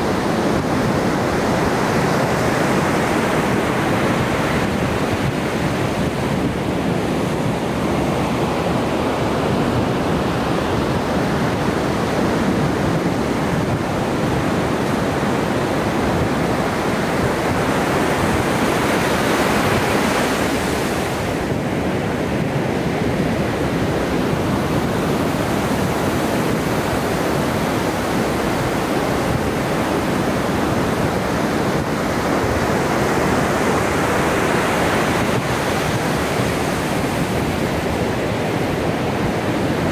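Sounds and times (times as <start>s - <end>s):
waves breaking on shore: 0.0s - 39.9s.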